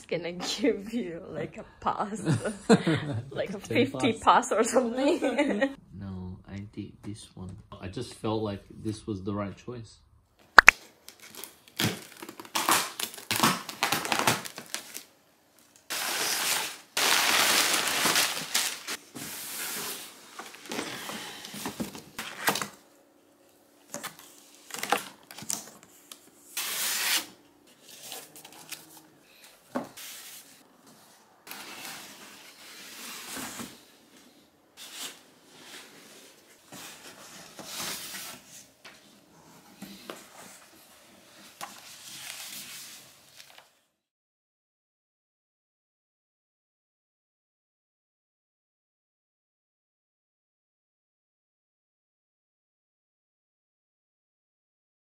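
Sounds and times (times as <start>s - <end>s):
tape tearing: 10.6s - 15.1s, 15.9s - 19.0s, 23.9s - 29.0s
cardboard and plastic rustling: 15.9s - 22.9s, 23.9s - 33.9s
box cutter slicing tape: 26.6s - 27.4s.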